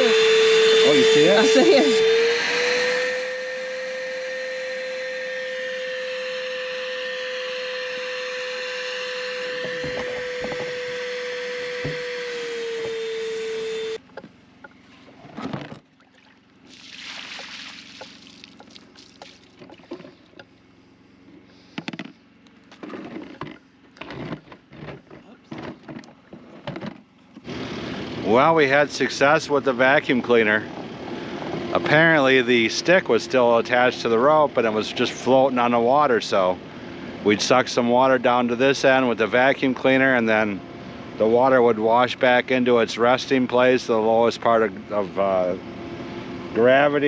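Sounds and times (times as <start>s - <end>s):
vacuum cleaner whining: 0.0s - 14.1s, 22.8s - 47.0s
knocks and clatter of handling: 14.1s - 15.9s, 21.7s - 27.4s.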